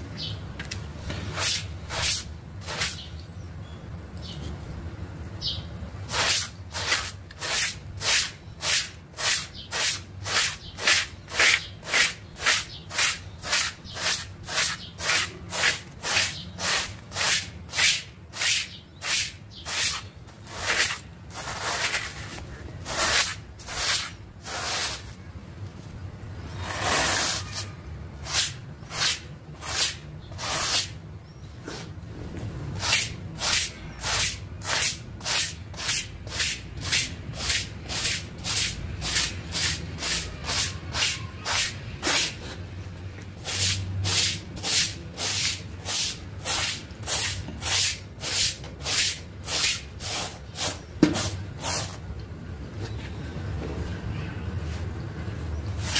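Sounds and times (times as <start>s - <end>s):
stiff brush scrubbing wet rug: 6.1s - 25.0s.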